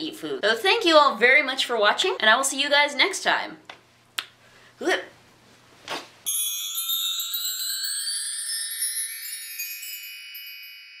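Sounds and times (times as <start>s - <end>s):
chime-like outro jingle: 6.3s - 11.0s.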